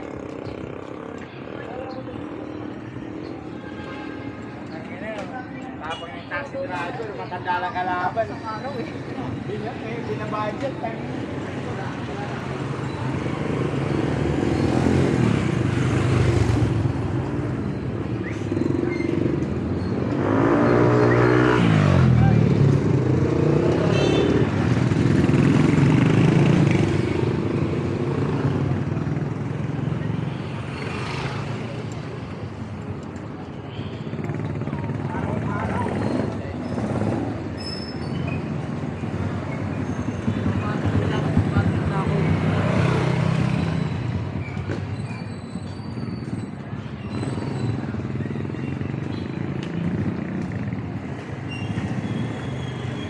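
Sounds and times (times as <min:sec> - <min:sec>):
motorcycles passing: 0:00.0 - 0:53.0
street traffic: 0:00.0 - 0:53.0
motorcycle passing by: 0:12.4 - 0:17.6, 0:18.6 - 0:32.3, 0:38.4 - 0:44.4.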